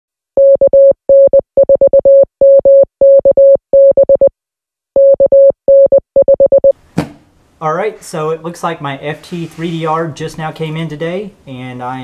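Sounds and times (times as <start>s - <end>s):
morse code beeping: 0.4s - 4.3s, 5.0s - 6.8s.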